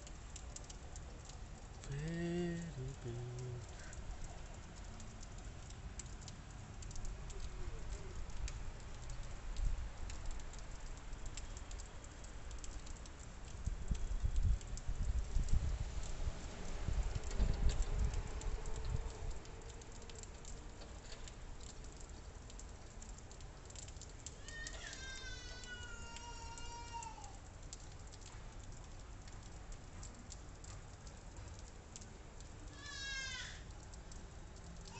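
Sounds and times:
wet snow pattering on rooftops: 0.0s - 34.9s
wet snow hissing on roof tiles: 24.1s - 29.2s.

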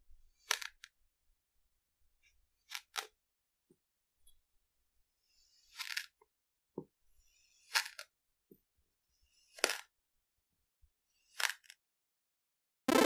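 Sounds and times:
knife crunching through kinetic sand: 9.5s - 9.9s.

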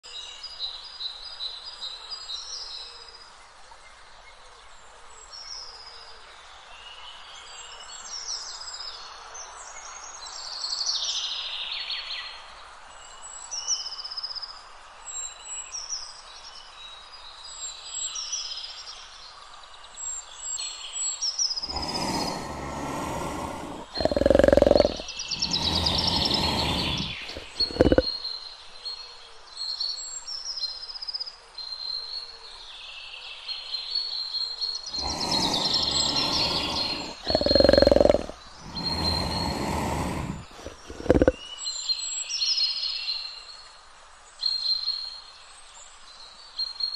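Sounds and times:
big cat growling and roaring: 21.6s - 28.1s, 34.9s - 41.4s
birds chirping: 21.6s - 28.1s, 34.9s - 41.4s.

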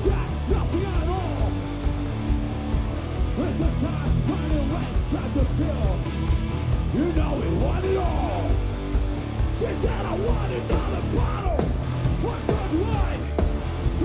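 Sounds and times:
person yelling into microphone: 0.0s - 1.6s
bass guitar: 0.0s - 14.0s
distorted electric guitar: 0.0s - 14.0s
pounding drums: 0.0s - 14.0s.

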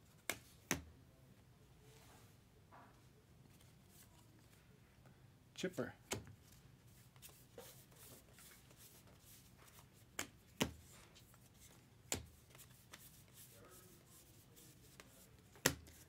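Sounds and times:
cards rustling and sliding: 6.2s - 16.0s.

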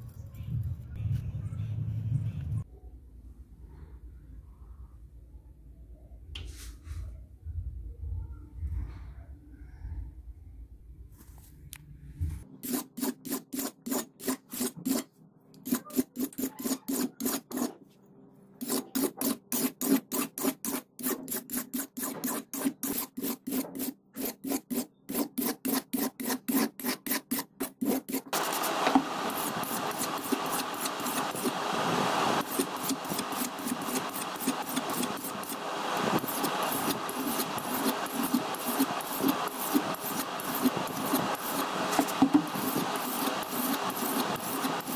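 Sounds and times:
knife scraping on whetstone: 12.6s - 17.8s, 18.6s - 31.6s, 32.4s - 44.9s.

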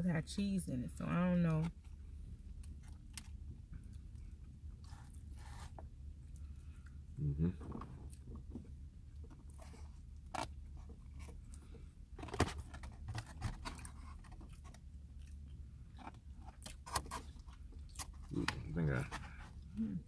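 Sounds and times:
low steady hum: 0.0s - 20.0s
person chewing: 13.8s - 18.5s.

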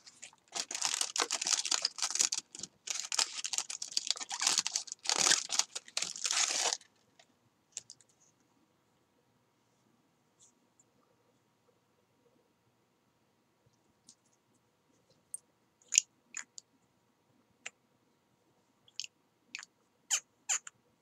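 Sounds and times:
cardboard box rustling and crinkling: 0.0s - 6.9s.

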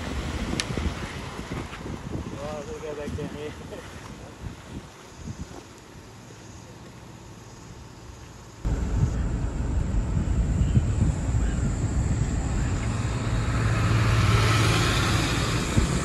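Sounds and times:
truck engine rumble: 8.7s - 16.0s.

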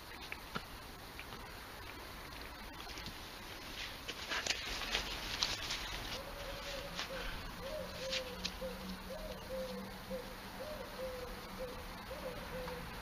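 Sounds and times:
pigeon cooing: 5.8s - 13.0s.

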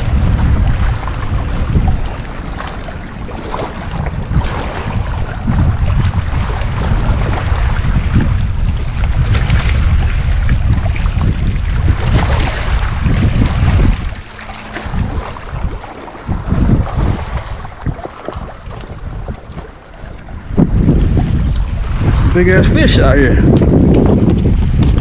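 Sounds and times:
wind buffeting microphone: 0.0s - 25.0s
fish splashing in water: 0.7s - 8.0s, 9.2s - 20.6s.

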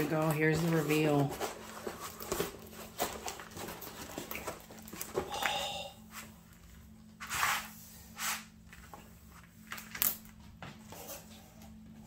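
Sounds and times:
plastic-covered canvas rustling: 0.0s - 5.4s.

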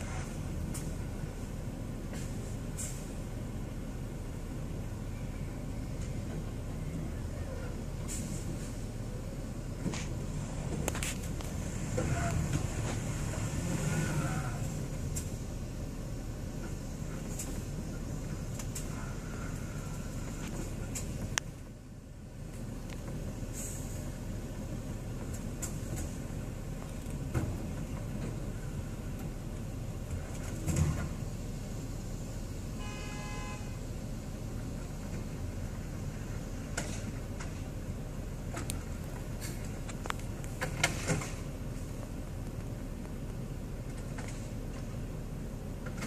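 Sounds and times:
car engine hum from inside: 0.0s - 46.0s
short pitched tone: 32.8s - 33.8s.

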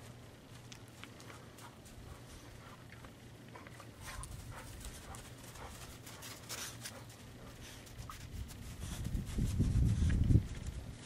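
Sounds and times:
dog panting: 1.2s - 10.0s.

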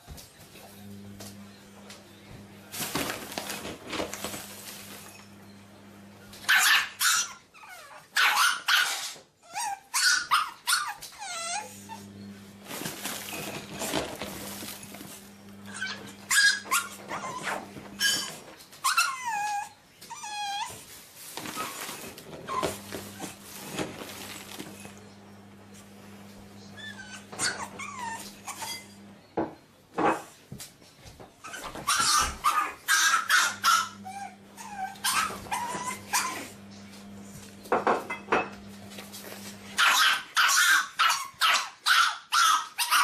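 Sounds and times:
puppy yapping and yelping: 6.5s - 12.0s, 15.7s - 20.8s, 26.8s - 28.8s, 31.4s - 36.5s, 39.8s - 43.0s.

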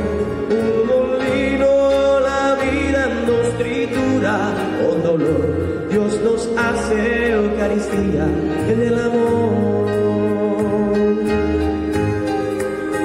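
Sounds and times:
church song singing: 0.0s - 12.0s
instrumental accompaniment: 0.0s - 13.0s.

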